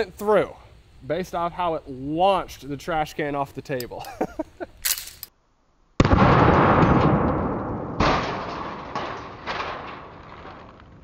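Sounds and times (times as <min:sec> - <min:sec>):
shotgun blast: 0:06.0 - 0:09.7.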